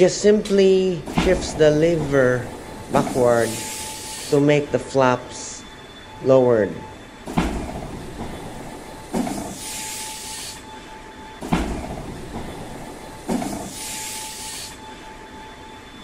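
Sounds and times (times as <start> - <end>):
hydraulic hissing: 0.0 - 4.8, 7.2 - 15.0
hydraulic thumps with growl: 1.0 - 3.3, 7.2 - 9.6, 11.4 - 13.8.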